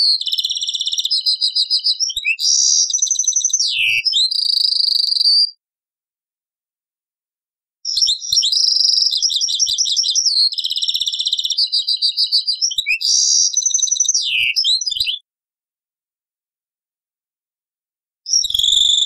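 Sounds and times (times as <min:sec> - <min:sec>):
finch singing trills: 0:00.0 - 0:05.6, 0:07.9 - 0:15.2.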